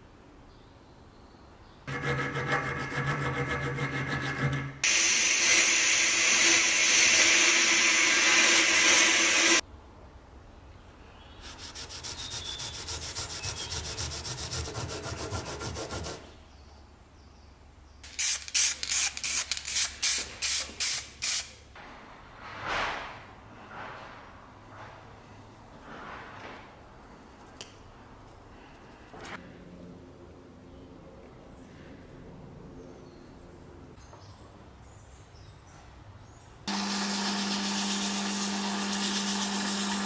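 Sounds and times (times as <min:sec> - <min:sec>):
hand sanding strokes: 0:01.9 - 0:04.9, 0:11.4 - 0:16.3, 0:36.9 - 0:40.0
power sander humming: 0:04.8 - 0:09.6, 0:36.7 - 0:40.0.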